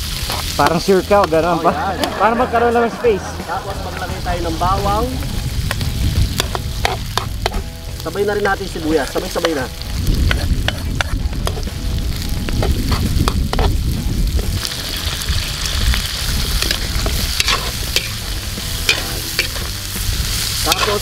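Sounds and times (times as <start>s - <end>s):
meat sizzling in a wok: 0.0s - 21.0s
metal spatula scraping a pan: 0.2s - 1.4s, 6.4s - 7.7s, 10.2s - 11.8s, 12.5s - 13.8s, 16.3s - 19.7s, 20.4s - 21.0s.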